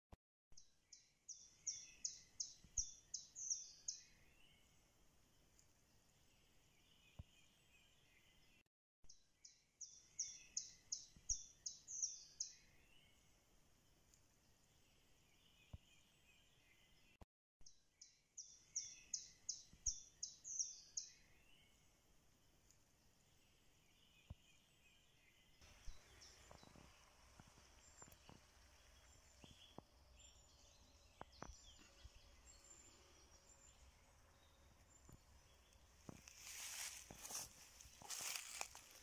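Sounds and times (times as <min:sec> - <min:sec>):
songbird singing: 0:00.5 - 0:39.0
birds chirping: 0:23.2 - 0:39.0.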